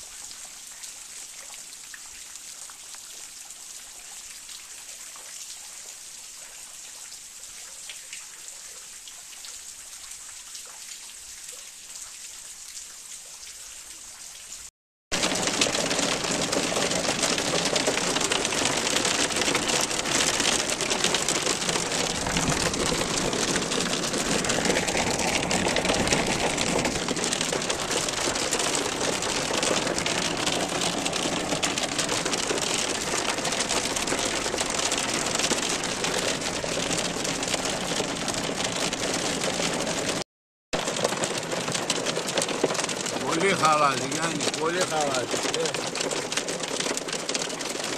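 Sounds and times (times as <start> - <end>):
hail falling: 15.1 - 40.2, 40.8 - 47.9
hail hitting car roof: 15.1 - 40.2, 40.8 - 47.9.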